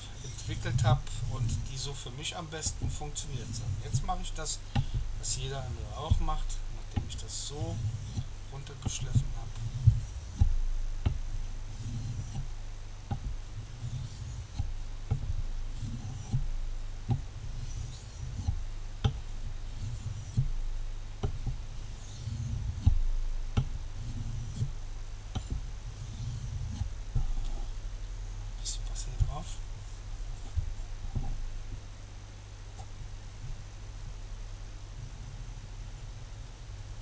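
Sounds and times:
knife scraping on whetstone: 0.1 - 4.6, 5.2 - 10.5, 11.7 - 12.5, 13.7 - 14.6, 15.8 - 16.4, 17.4 - 18.5, 19.7 - 20.5, 21.8 - 23.0, 24.0 - 24.8, 25.4 - 27.7.

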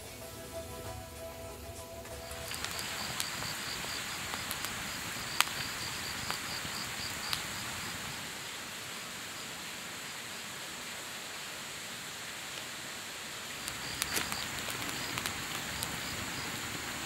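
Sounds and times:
insects chirping: 0.0 - 10.5, 13.4 - 17.0
firewood crackling and popping: 1.6 - 9.2, 13.4 - 17.0.

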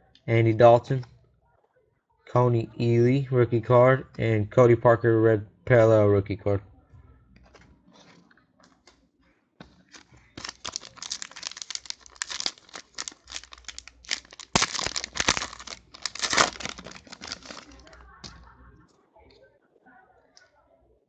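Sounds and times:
foil wrapper tearing and crinkling: 9.9 - 18.0.

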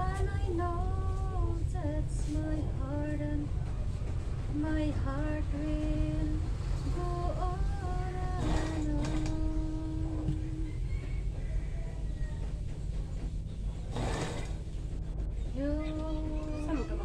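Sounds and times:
woman singing slow melody: 0.0 - 3.6, 4.5 - 10.7, 15.5 - 17.0
steady low rumble: 0.0 - 17.0.

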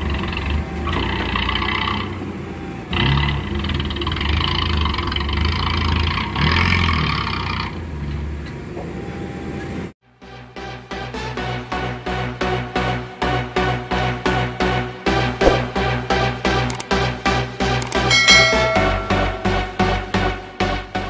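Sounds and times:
excavator diesel engine: 0.0 - 9.9
electronic music with steady beat: 17.7 - 20.2.

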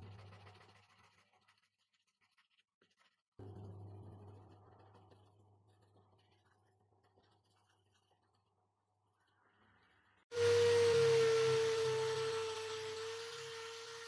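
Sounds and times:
electric drill whining: 10.4 - 14.0.

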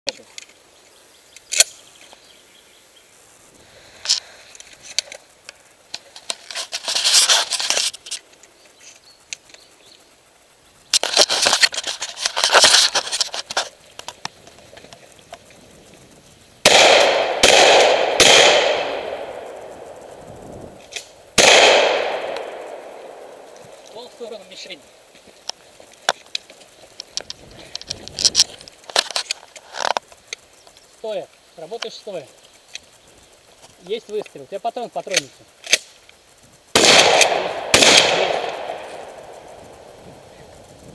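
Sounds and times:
dense crackling and rattling: 3.3 - 40.9
loud gunshots with echo: 16.6 - 19.8, 21.4 - 23.4, 36.8 - 39.5.

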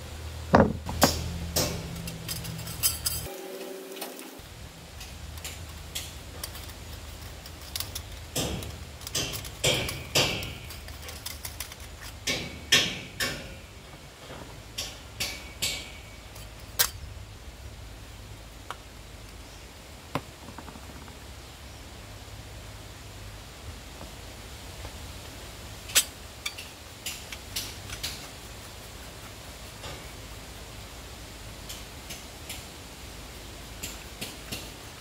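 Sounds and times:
metal parts scraping: 0.6 - 4.4, 5.0 - 14.4, 15.3 - 17.1
metal fitting clicking: 5.0 - 13.5.

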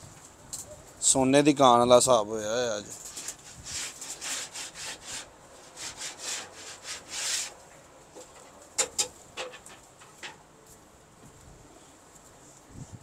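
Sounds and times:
short scraping strokes: 3.0 - 7.6.

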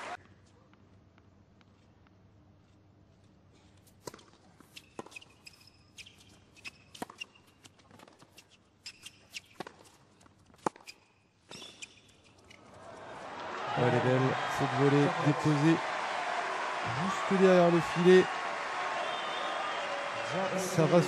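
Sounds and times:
shoe squeaks on court: 4.6 - 12.6.

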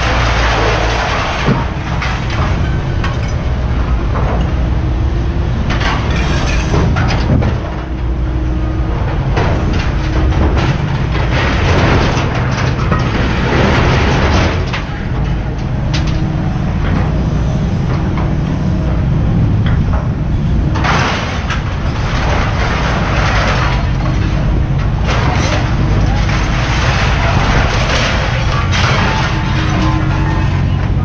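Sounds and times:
scrap metal clanking: 0.0 - 4.8, 5.6 - 8.1, 19.7 - 31.0
diesel machinery rumbling: 0.0 - 31.0
scrap metal crashing: 0.0 - 31.0.

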